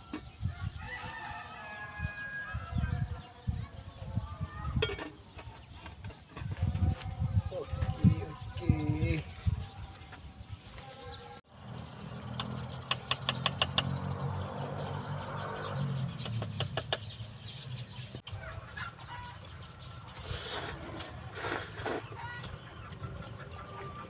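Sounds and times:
sharp clicks: 12.3 - 14.0
chickens clucking: 18.2 - 24.0.

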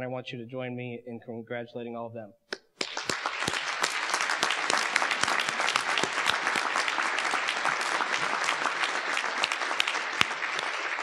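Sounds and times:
crowd applauding: 2.8 - 11.0.

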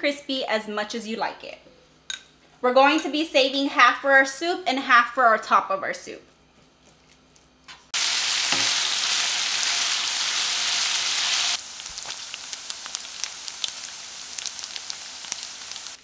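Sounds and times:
bacon sizzling in a skillet: 8.0 - 16.0.

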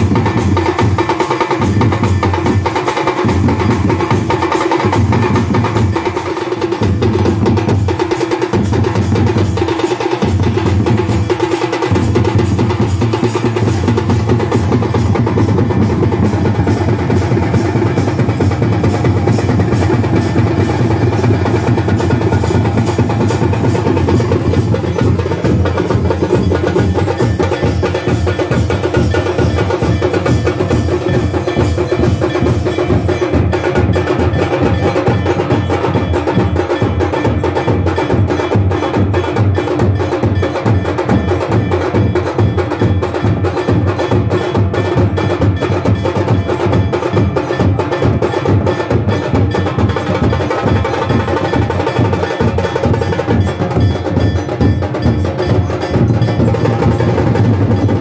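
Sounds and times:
bells ringing: 0.0 - 58.0
drums beaten in fast rhythm: 0.0 - 58.0.

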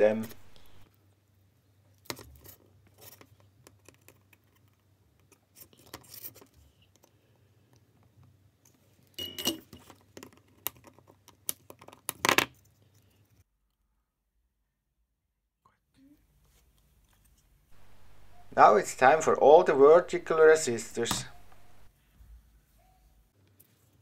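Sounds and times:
low steady hum: 0.0 - 0.9, 17.8 - 21.9.

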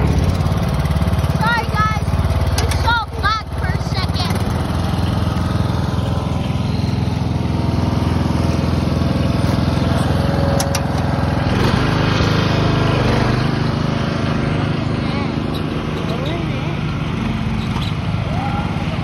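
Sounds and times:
small engine running: 0.0 - 19.0.

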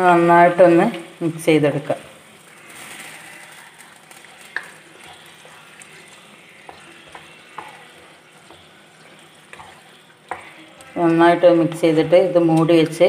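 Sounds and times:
gravy sizzling: 0.0 - 13.0
spatula stirring thick gravy: 1.8 - 13.0
spatula tapping pan: 4.4 - 13.0.

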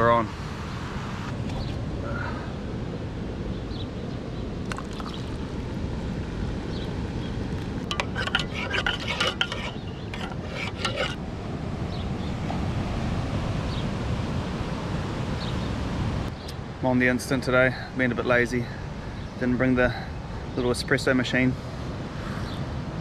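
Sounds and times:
spoon clinking in metal mug: 7.8 - 11.2.

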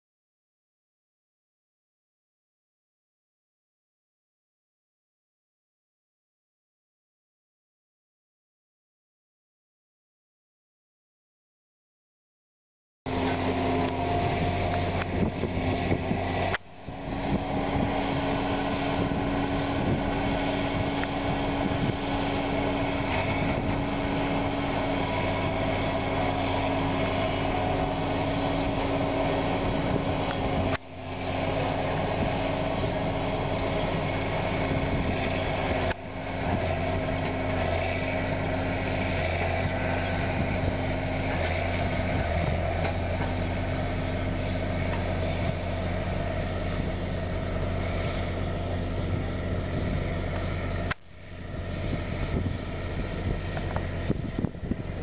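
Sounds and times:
tractor diesel engine running: 13.1 - 55.0.

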